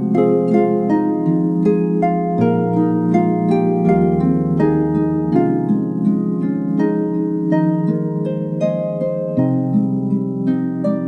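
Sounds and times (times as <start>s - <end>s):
harp melody: 0.0s - 11.0s.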